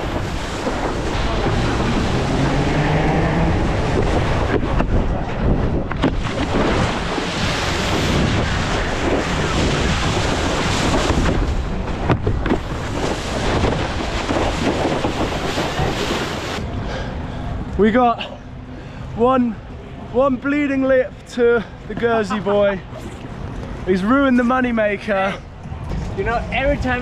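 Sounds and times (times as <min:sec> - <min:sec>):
wind buffeting microphone: 0:00.0 - 0:17.8
wakeboard rushing across water: 0:00.0 - 0:27.0.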